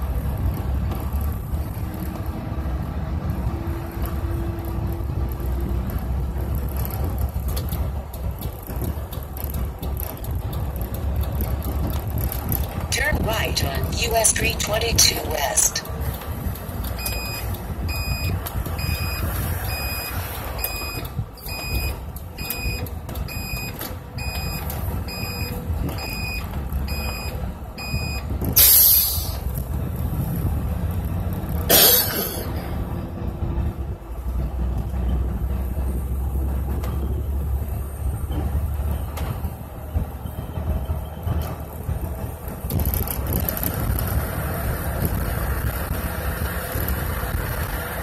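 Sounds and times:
bus engine and road rumble: 0:00.0 - 0:48.0
turn signal beeping: 0:16.9 - 0:29.4
loud air hissing bursts: 0:28.7 - 0:29.4.

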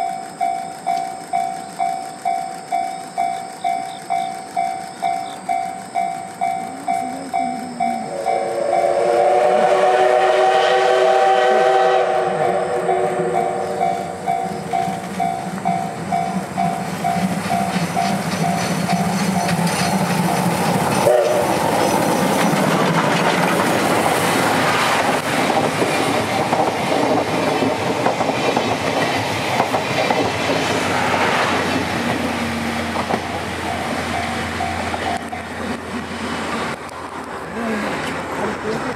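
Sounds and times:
level crossing warning bell: 0:00.0 - 0:09.0, 0:12.4 - 0:20.4, 0:33.3 - 0:35.8
steam locomotive passing: 0:00.0 - 0:38.9
train wheels clacking on rail joints: 0:12.4 - 0:38.9.

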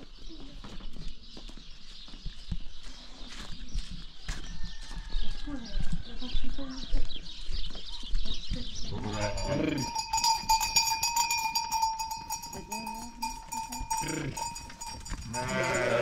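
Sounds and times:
sheep bleating: 0:08.9 - 0:10.0, 0:15.3 - 0:16.0
livestock bells clanging: 0:08.9 - 0:16.0.

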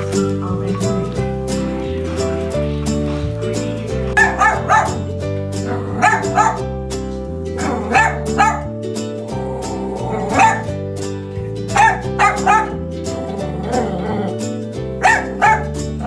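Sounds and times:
background music: 0:00.0 - 0:16.0
dog barking: 0:04.2 - 0:05.0, 0:05.9 - 0:06.6, 0:07.6 - 0:08.7, 0:10.3 - 0:10.7, 0:11.7 - 0:12.8, 0:15.0 - 0:15.8.

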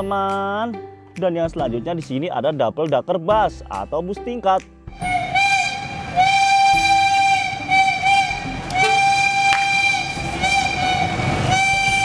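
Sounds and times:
street traffic noise: 0:04.9 - 0:12.0
bus air horn blasts: 0:05.0 - 0:12.0.

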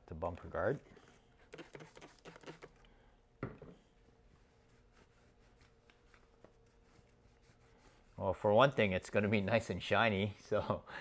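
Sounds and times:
spray bottle spraying: 0:01.5 - 0:02.8
bottle set down thump: 0:03.4 - 0:03.8
cloth rubbing: 0:03.9 - 0:08.8.

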